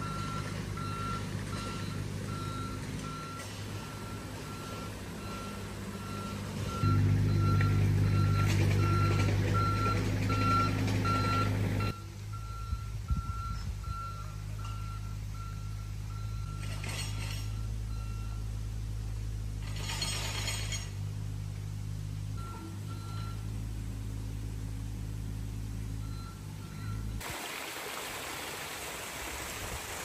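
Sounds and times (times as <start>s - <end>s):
vehicle reversing alarm beeping: 0.0s - 18.7s, 22.4s - 27.2s
engine running hum: 0.0s - 27.4s.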